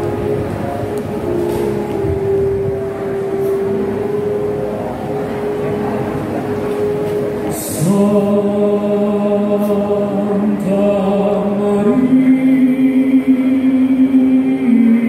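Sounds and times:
slow chant-like singing: 0:07.5 - 0:15.0.

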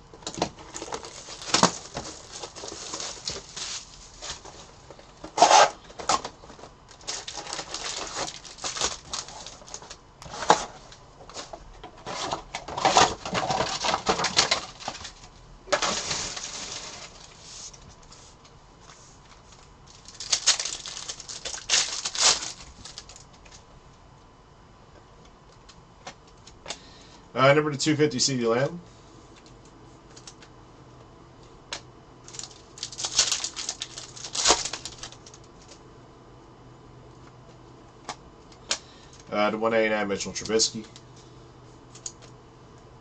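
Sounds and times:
foil packs crinkling: 0:00.2 - 0:18.2, 0:19.4 - 0:23.6, 0:32.2 - 0:35.8.

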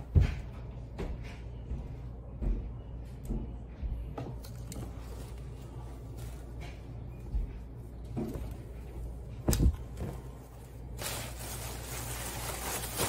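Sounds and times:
plastic bag rustling: 0:04.9 - 0:06.9, 0:09.7 - 0:13.0.

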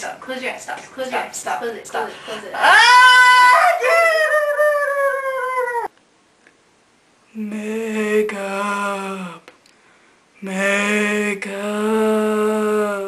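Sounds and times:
girl wailing: 0:02.6 - 0:05.9.

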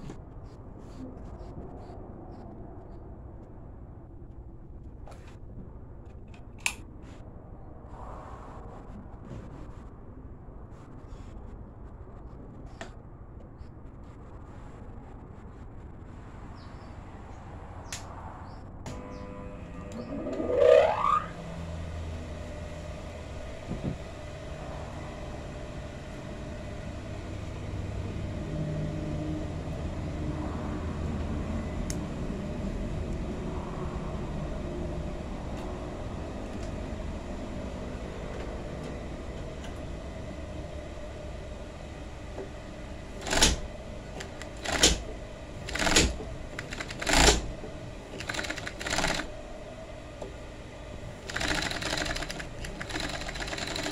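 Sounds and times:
low motor hum: 0:18.6 - 0:53.9
rising whine: 0:18.9 - 0:53.9
sewing machine stitching: 0:43.2 - 0:47.5, 0:48.1 - 0:49.3, 0:51.2 - 0:53.9.

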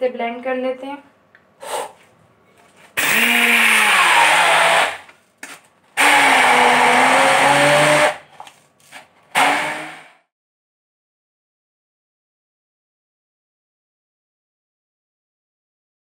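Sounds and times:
immersion blender running: 0:03.0 - 0:05.1, 0:06.0 - 0:08.2, 0:09.3 - 0:10.2.

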